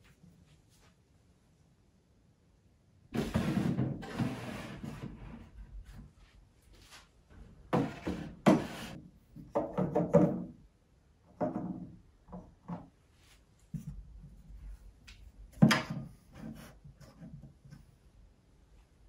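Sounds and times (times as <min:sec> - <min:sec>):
objects knocking on shelves: 0:03.2 - 0:05.1, 0:07.7 - 0:10.6.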